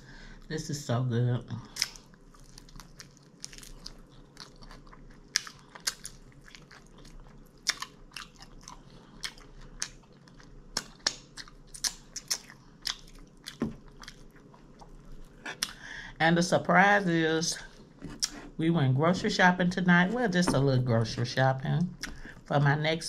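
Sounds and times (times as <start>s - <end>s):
person chewing crispy food: 1.6s - 15.9s.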